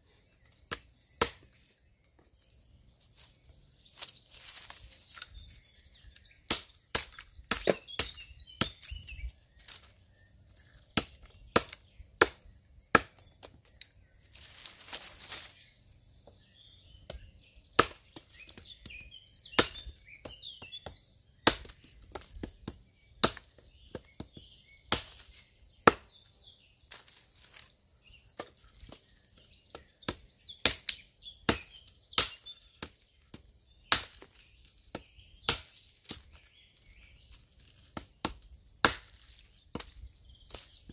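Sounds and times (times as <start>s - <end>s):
hatchet chopping branches: 0.7s - 1.7s, 6.4s - 9.0s, 10.9s - 13.6s, 17.1s - 26.2s, 29.7s - 36.4s, 37.8s - 40.9s.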